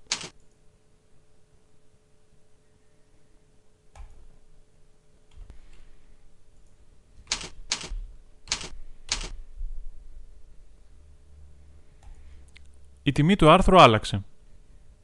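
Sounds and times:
computer keyboard keystrokes: 0.0s - 0.6s, 6.6s - 9.4s.

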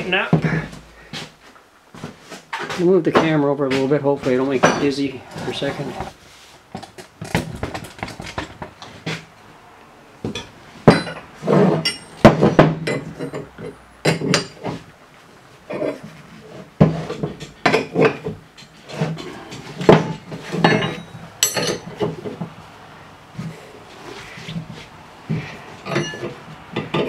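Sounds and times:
metal tools clanking: 10.3s - 14.8s, 17.0s - 22.5s, 25.3s - 27.0s.

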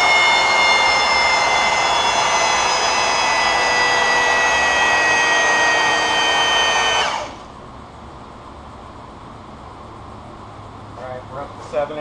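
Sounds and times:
hydraulic pump whining: 0.0s - 7.6s
low shop hum: 0.0s - 12.0s.

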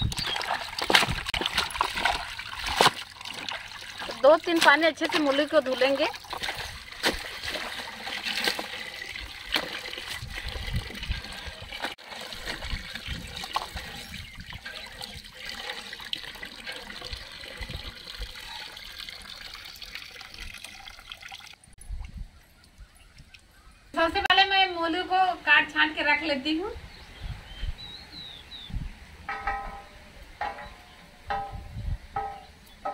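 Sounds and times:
water gushing into a tub: 0.0s - 21.6s.

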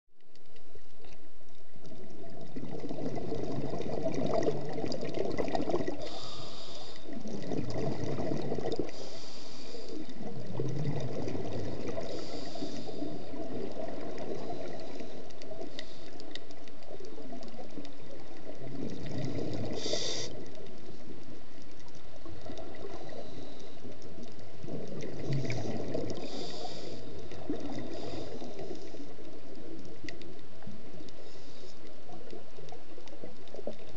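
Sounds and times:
exhaled bubbles gurgling: 1.7s - 33.9s
regulator inhalation hiss: 6.0s - 7.2s, 8.8s - 10.1s, 12.1s - 13.4s, 19.7s - 20.5s, 26.2s - 29.1s.

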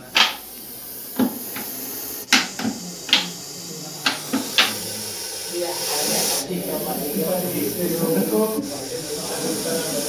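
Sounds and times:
short sharp taps: 0.2s - 0.4s.

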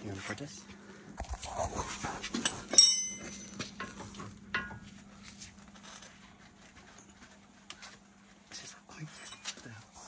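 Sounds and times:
ringing metallic clink: 2.7s - 3.6s.

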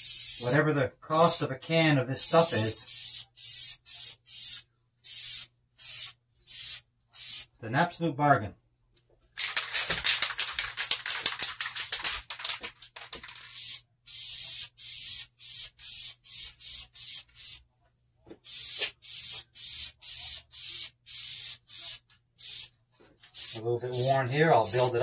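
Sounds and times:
aerosol spray can hissing: 0.0s - 0.6s, 2.3s - 7.5s, 9.4s - 12.1s, 13.6s - 17.6s, 18.4s - 22.7s, 23.3s - 25.0s.

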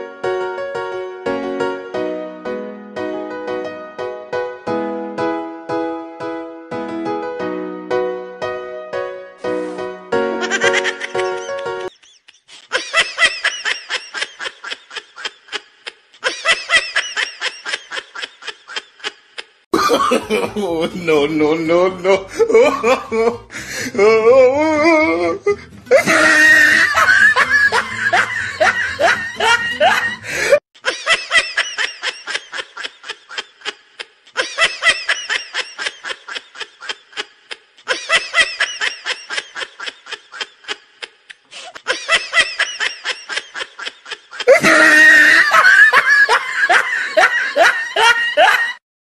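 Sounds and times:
hearty laughter: 10.4s - 21.0s, 22.0s - 23.6s, 25.4s - 48.8s.

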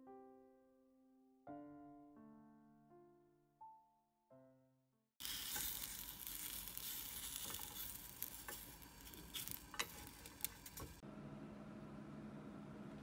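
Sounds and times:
rice cakes sizzling in a pan: 5.2s - 11.0s
chopsticks clicking on a pan: 7.2s - 11.0s.

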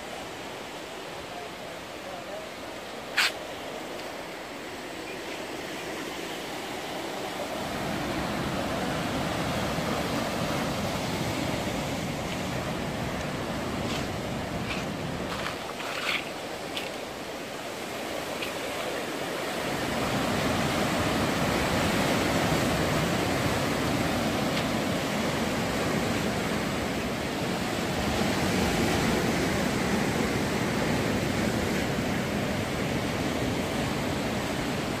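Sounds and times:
sea surf breaking on rocks: 0.0s - 35.0s.

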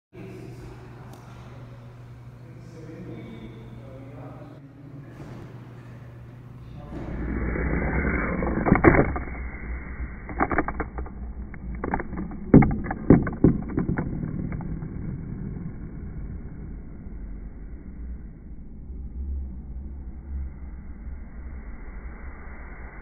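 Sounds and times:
toy skateboard rolling down ramp: 7.1s - 16.0s
toy knocking and clattering on table: 10.3s - 15.4s.

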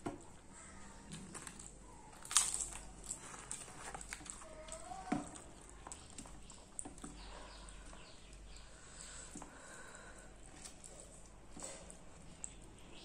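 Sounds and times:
fingers squishing wet food: 0.0s - 13.0s
chewing: 0.2s - 9.6s, 10.2s - 12.9s
crunchy bites: 1.1s - 7.1s.

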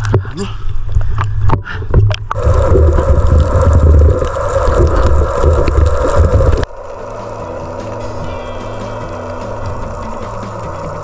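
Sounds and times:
underwater rumble and hiss: 0.8s - 11.0s
background music: 7.0s - 11.0s.

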